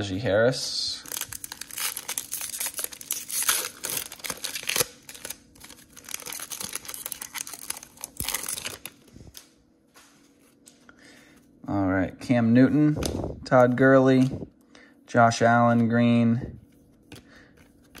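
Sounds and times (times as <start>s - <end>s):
foil wrapper tearing and crinkling: 1.0s - 9.1s.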